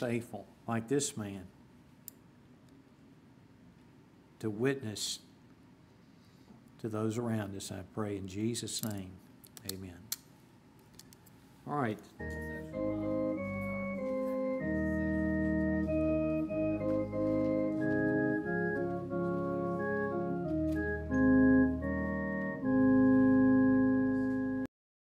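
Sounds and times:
organ playing sustained chords: 0:12.2 - 0:24.7.

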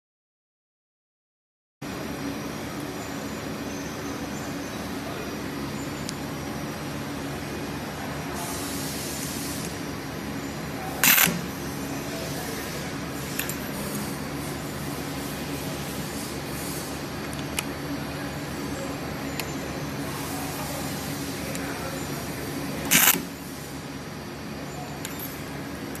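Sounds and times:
steady machine hum: 0:01.8 - 0:26.0
stud welding gun crack: 0:11.0 - 0:11.5, 0:22.8 - 0:23.3.

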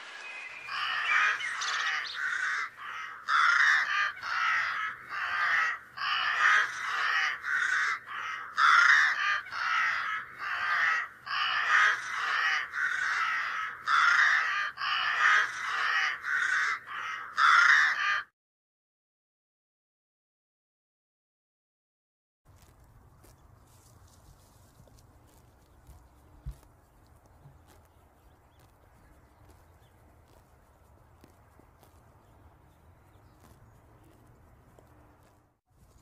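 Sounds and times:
crows cawing: 0:00.6 - 0:18.3.

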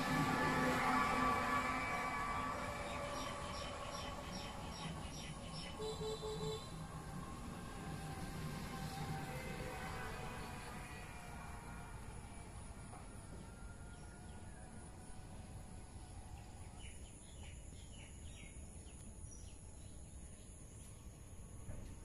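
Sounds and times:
low rumbling noise: 0:00.0 - 0:22.0
steady high-pitched hum: 0:00.0 - 0:22.0
bird chirping: 0:02.3 - 0:06.7.

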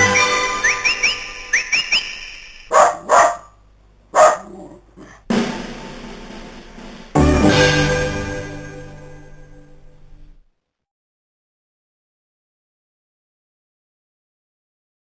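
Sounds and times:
background music: 0:00.0 - 0:01.6, 0:05.3 - 0:10.4
dog barking: 0:02.7 - 0:05.2.

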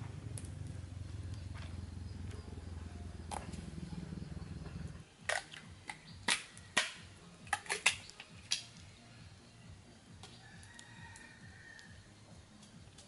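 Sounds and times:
campfire popping and cracking: 0:00.0 - 0:02.4, 0:04.8 - 0:09.0, 0:10.1 - 0:13.0
low steady rumble: 0:00.0 - 0:05.1.

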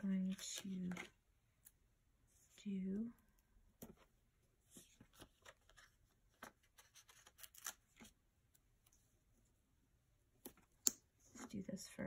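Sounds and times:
paper pages rustling: 0:04.7 - 0:08.2.

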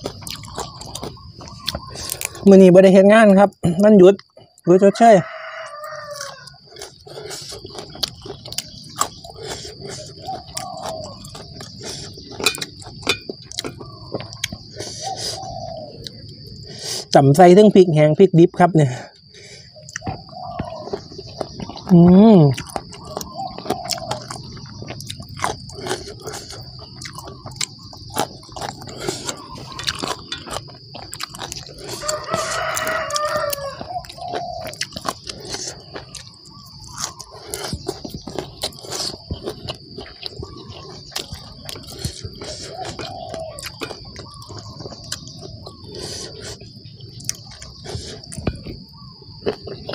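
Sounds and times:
chewing: 0:00.0 - 0:02.5, 0:05.6 - 0:17.2, 0:19.1 - 0:49.9
high insect drone: 0:00.0 - 0:49.9
rooster crowing: 0:04.7 - 0:06.8, 0:31.8 - 0:34.8
fingers clinking on steel tray: 0:12.4 - 0:13.8, 0:29.7 - 0:30.7.

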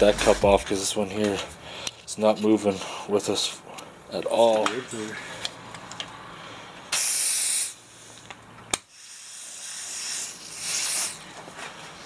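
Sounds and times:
aerosol spray hissing: 0:08.9 - 0:11.2.

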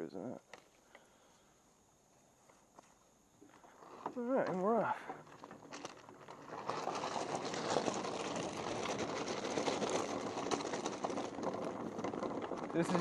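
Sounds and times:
bike rattling: 0:03.4 - 0:13.0
tyres crunching over gravel: 0:03.4 - 0:13.0.

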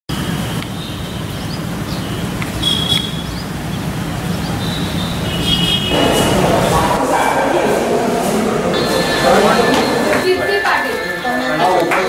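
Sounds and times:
high bird chirps: 0:00.5 - 0:06.0.

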